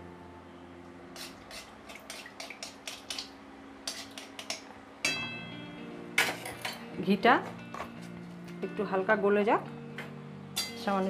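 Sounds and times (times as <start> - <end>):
metal spoon scraping metal pan: 3.8 - 4.6.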